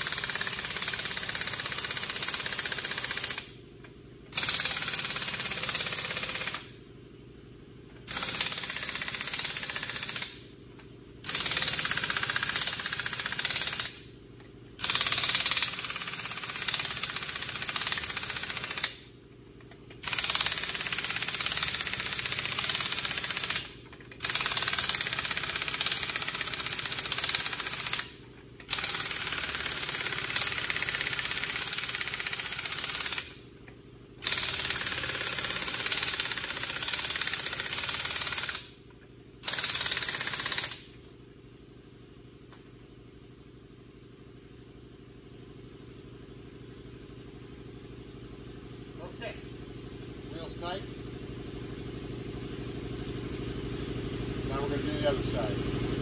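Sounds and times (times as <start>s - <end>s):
pneumatic impact wrench hammering: 0.0s - 3.6s, 4.3s - 6.8s, 7.9s - 10.5s, 11.2s - 41.1s.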